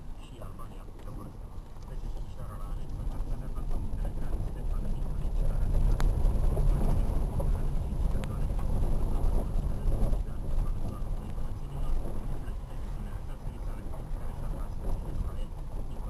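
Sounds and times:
car driving on rough road: 0:00.0 - 0:16.0.

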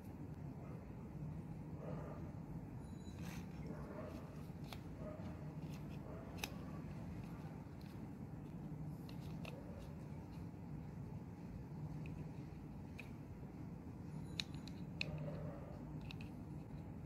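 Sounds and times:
steady low hum: 0:00.0 - 0:17.0
plastic and metal parts clicking: 0:05.6 - 0:10.5, 0:14.2 - 0:17.0.

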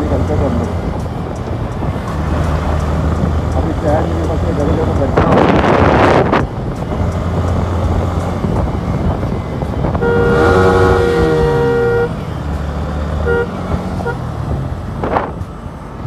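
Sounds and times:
motorcycle running: 0:00.0 - 0:16.0
wind on microphone: 0:05.1 - 0:11.9
vehicle horn: 0:09.9 - 0:12.2, 0:13.2 - 0:14.2.

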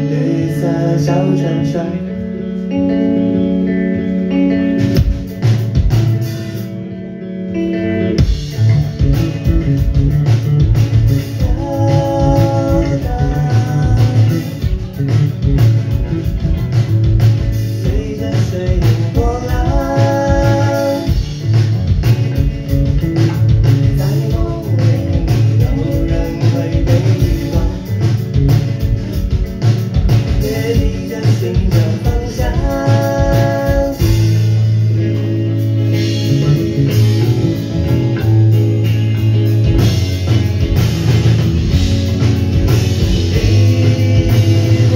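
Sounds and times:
held melodic guitar lines: 0:00.0 - 0:44.9
rock band playing: 0:00.0 - 0:44.9
busy drumming: 0:04.7 - 0:06.7, 0:08.2 - 0:44.9.

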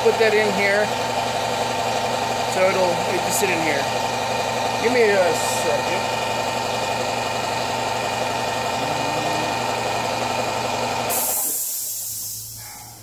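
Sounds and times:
air compressor motor hum: 0:00.0 - 0:13.0
air hissing out: 0:11.0 - 0:12.8.

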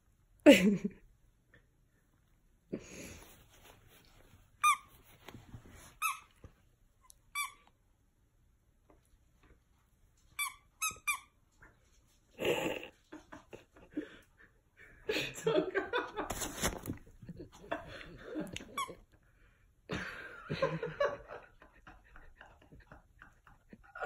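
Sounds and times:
squeaky toy squeaks: 0:04.6 - 0:04.9, 0:06.0 - 0:06.4, 0:07.3 - 0:07.6, 0:10.4 - 0:11.4.

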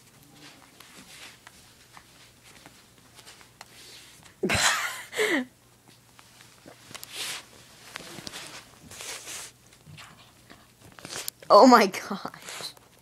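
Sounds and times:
soft rustles and clicks: 0:00.0 - 0:04.4, 0:05.7 - 0:11.5.

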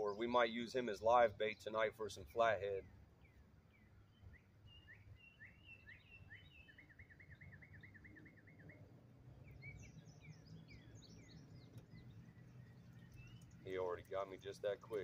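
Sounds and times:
songbirds chirping: 0:00.0 - 0:15.0
bird trill: 0:03.2 - 0:14.3
low outdoor rumble: 0:07.2 - 0:15.0.

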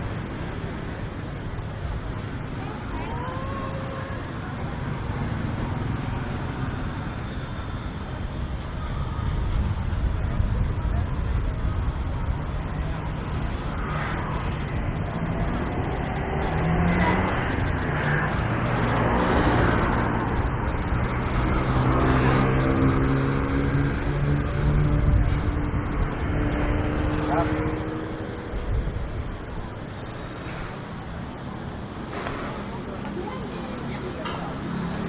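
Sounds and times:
cars driving past: 0:00.0 - 0:35.0.

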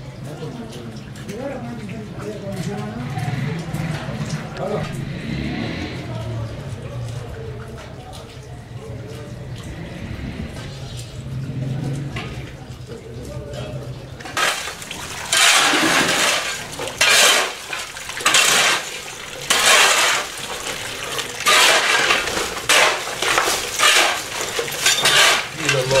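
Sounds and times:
thin stream from tap: 0:00.1 - 0:05.3, 0:05.9 - 0:26.0
water splashing on face: 0:13.8 - 0:26.0.

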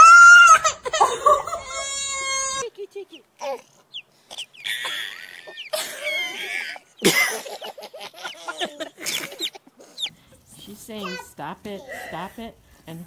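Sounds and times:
baby giggling: 0:04.3 - 0:10.1.

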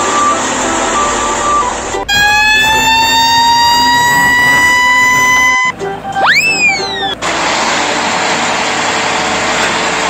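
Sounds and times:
background music: 0:00.0 - 0:07.2
siren-like rising tone: 0:00.0 - 0:07.2.

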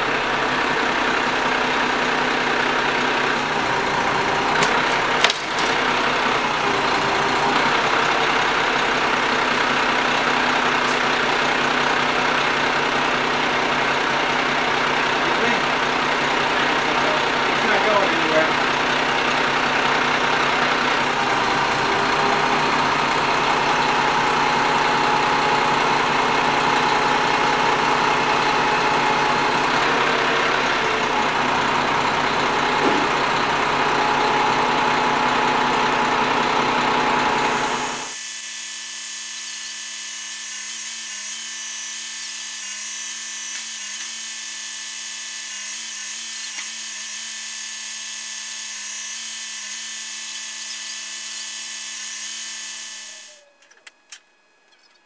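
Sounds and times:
diesel truck engine running: 0:00.0 - 0:38.1.

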